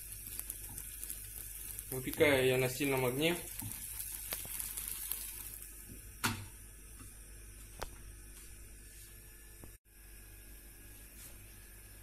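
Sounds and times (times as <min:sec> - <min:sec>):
faint sizzle in pan: 0:00.0 - 0:07.7.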